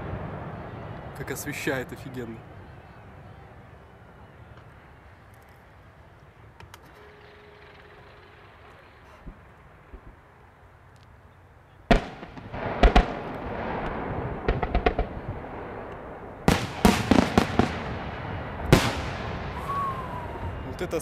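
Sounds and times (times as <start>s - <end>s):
firework bangs: 0.0s - 3.4s, 11.9s - 21.0s.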